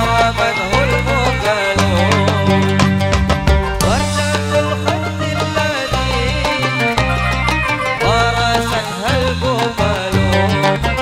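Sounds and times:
stepping bass line: 0.0s - 11.0s
hand drum strikes: 1.8s - 5.0s
sliding ornamented melody: 3.9s - 9.7s.

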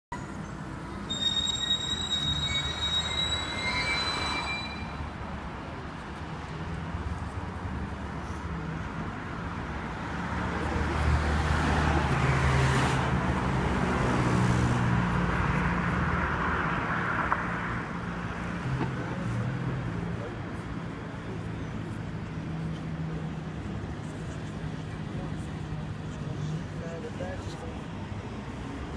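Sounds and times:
traffic engine hum: 0.1s - 28.9s
high thin squeal: 0.2s - 5.2s.

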